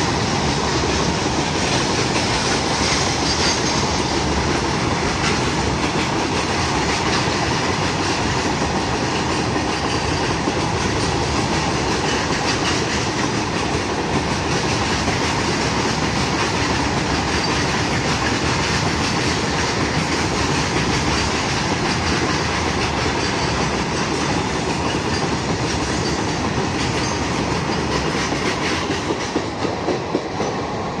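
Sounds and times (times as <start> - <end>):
freight train passing: 0.0 - 31.0.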